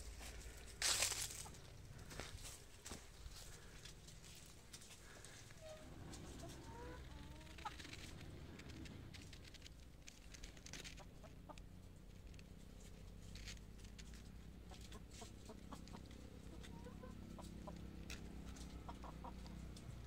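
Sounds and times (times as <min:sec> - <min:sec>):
chickens clucking softly: 0:03.4 - 0:09.7, 0:10.8 - 0:13.2, 0:14.1 - 0:20.0.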